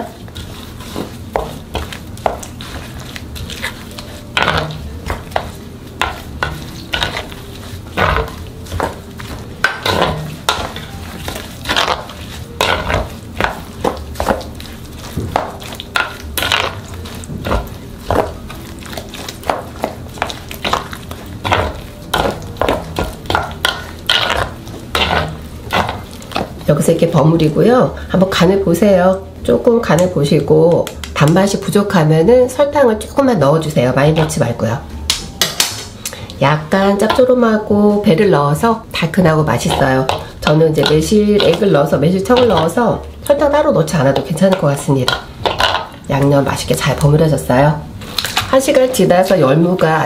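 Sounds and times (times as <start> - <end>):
wet scraping against bowl: 0.0 - 26.6, 39.5 - 42.8
wet paste stirred in a bowl: 0.0 - 29.1, 32.9 - 50.0.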